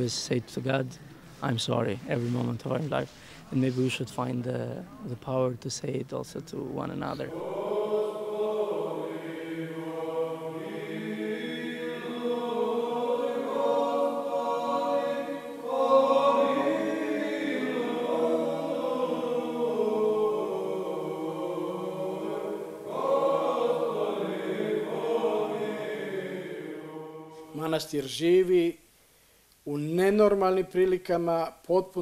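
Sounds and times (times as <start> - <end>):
men chanting: 7.1 - 27.9.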